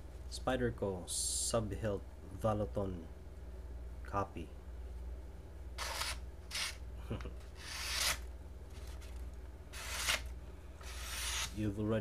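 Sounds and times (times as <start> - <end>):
knife slicing through paper: 5.8 - 6.8, 7.6 - 8.2, 9.7 - 11.6.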